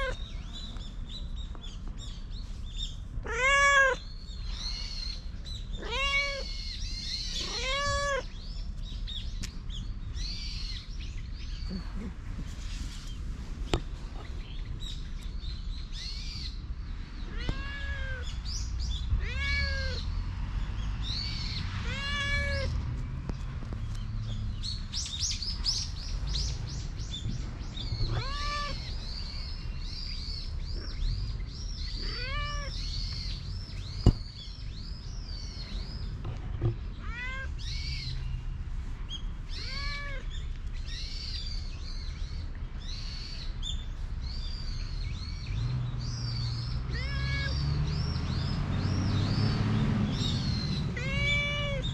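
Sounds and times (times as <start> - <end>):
cat meowing: 3.2 - 4.1, 5.8 - 6.7, 7.3 - 8.3, 17.3 - 18.4, 19.1 - 20.0, 21.8 - 22.8, 28.0 - 28.9, 32.0 - 32.8, 37.0 - 37.6, 39.5 - 40.3, 46.9 - 47.6, 51.0 - 51.9.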